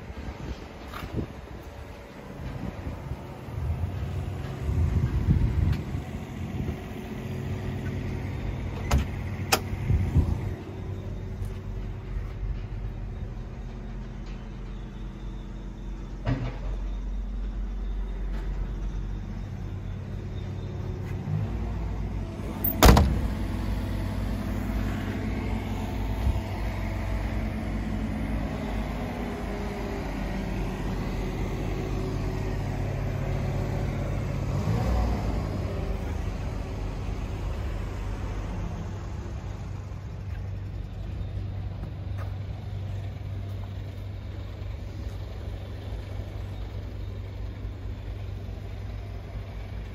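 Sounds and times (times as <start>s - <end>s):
diesel engine idling: 0.0s - 49.9s
cab door slamming: 22.6s - 23.4s.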